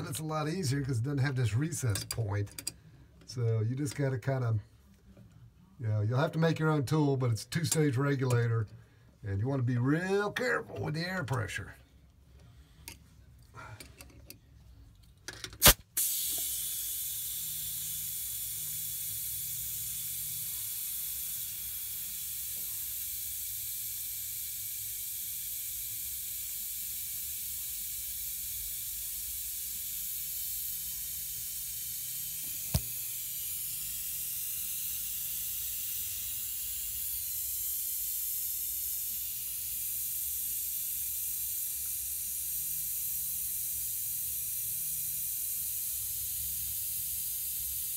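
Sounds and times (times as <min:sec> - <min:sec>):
compressed air hissing: 0:15.6 - 0:47.9.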